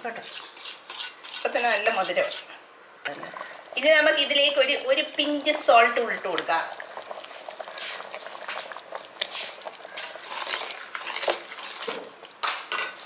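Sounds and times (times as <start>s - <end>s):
metal spoon stirring a pot: 0.1s - 2.6s, 6.3s - 13.0s
spoon clinking and scraping pot: 0.2s - 2.6s, 12.7s - 13.0s.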